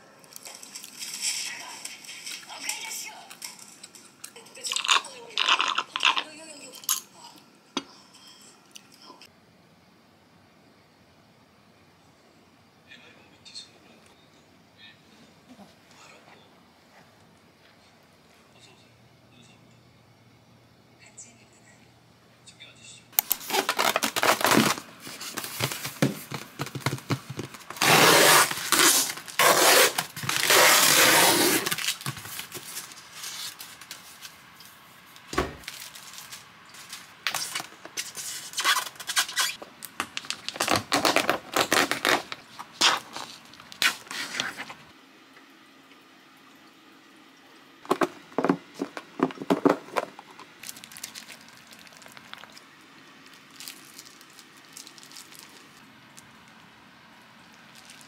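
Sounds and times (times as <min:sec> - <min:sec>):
plastic rustling and tearing: 0:23.2 - 0:34.4, 0:35.2 - 0:44.8, 0:47.9 - 0:56.6, 0:57.7 - 0:58.0
foam scraping: 0:23.4 - 0:31.8.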